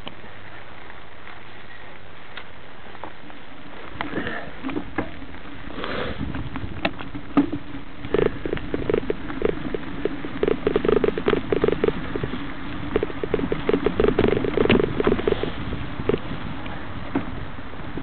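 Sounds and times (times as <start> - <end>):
steady hiss: 0.0 - 18.0
bike rattling and knocking: 4.1 - 18.0.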